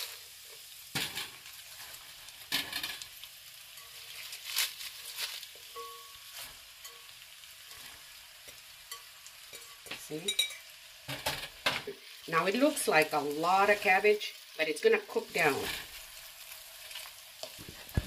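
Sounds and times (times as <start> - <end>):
vegetables sizzling in grease: 0.0 - 18.0.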